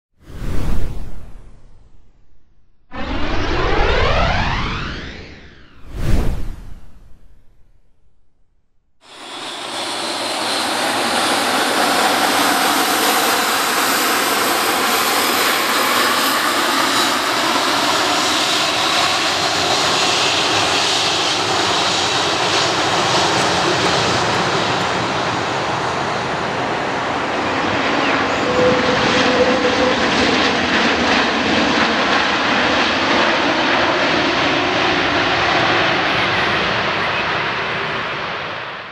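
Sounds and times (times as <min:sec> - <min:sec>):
jet airliner landing rumble: 0:02.9 - 0:08.4, 0:09.0 - 0:38.9.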